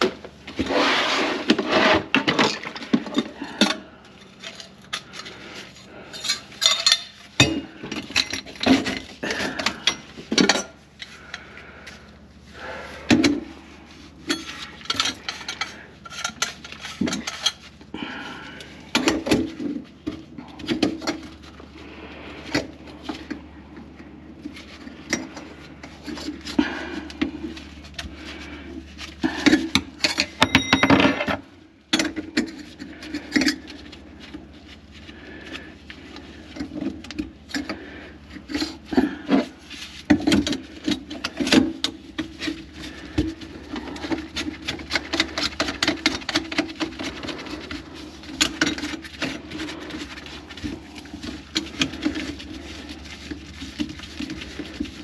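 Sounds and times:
steady low hum: 0.0s - 55.0s
clattering of metal and dishware: 6.1s - 10.8s, 14.2s - 17.7s, 29.4s - 33.7s.

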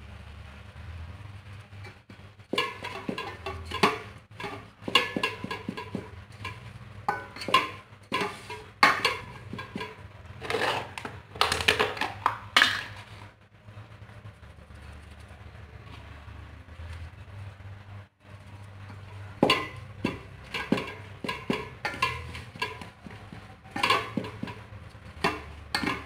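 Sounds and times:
spatula scraping and knocking pot: 1.7s - 13.3s, 18.3s - 26.0s.

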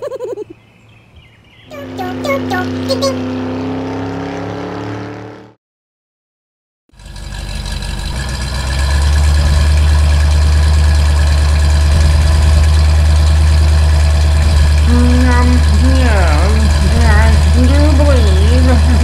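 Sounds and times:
car engine sound effect: 1.7s - 5.6s, 6.9s - 19.0s
deep engine idling: 6.9s - 19.0s.

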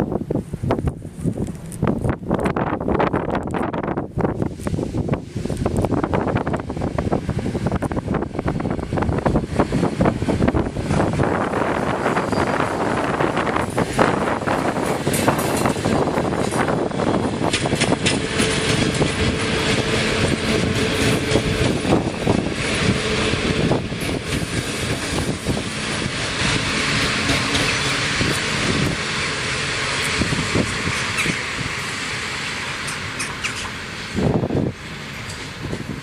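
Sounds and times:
train wheels rumbling on track: 0.0s - 36.0s
clacks over rail joints: 13.5s - 31.5s.

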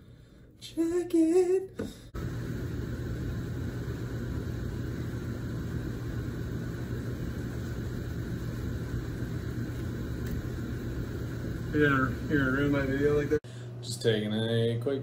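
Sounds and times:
low hum: 2.2s - 13.8s.

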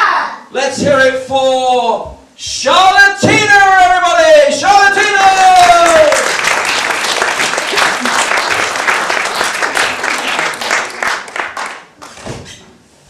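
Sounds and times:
audience applauding: 5.5s - 12.2s.

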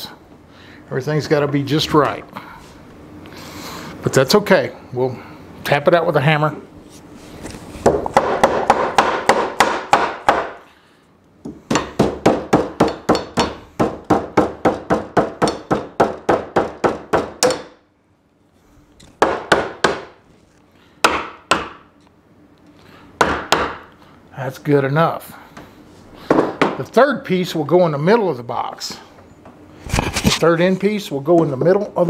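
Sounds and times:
hammer tapping on wood: 11.4s - 17.7s, 26.3s - 26.8s.

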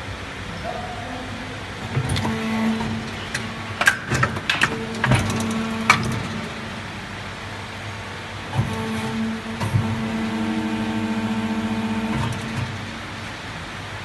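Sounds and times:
machine humming: 0.0s - 14.0s
sharp clicks and knocks: 1.8s - 6.6s.

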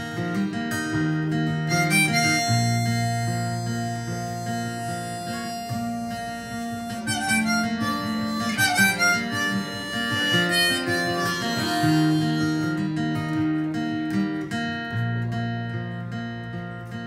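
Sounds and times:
electric guitar: 0.0s - 17.0s
strummed acoustic guitar: 0.0s - 17.0s
harmonica playing: 1.0s - 13.8s.

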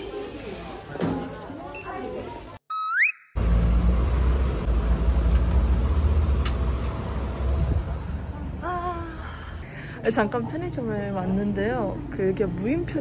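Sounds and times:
road traffic rumbling: 3.4s - 10.0s.

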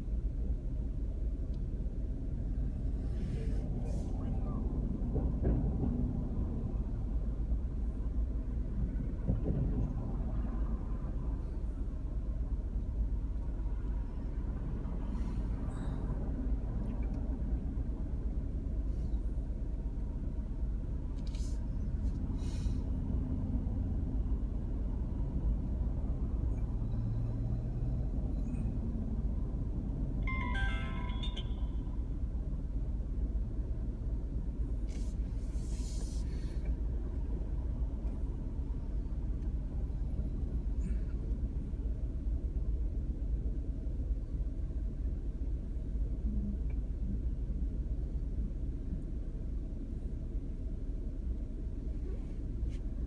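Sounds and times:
car road and engine rumble: 0.0s - 53.0s
brief high-pitched tone: 30.3s - 32.2s.

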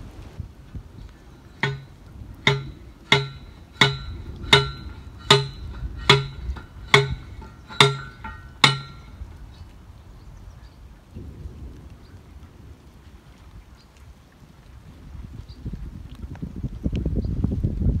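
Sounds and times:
steady low rumble: 0.0s - 13.6s
ringing note struck: 1.6s - 9.2s.

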